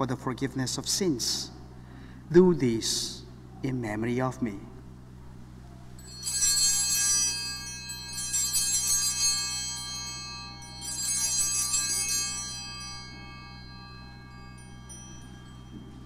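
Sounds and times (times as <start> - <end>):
small bells jingling: 6.0 - 16.0.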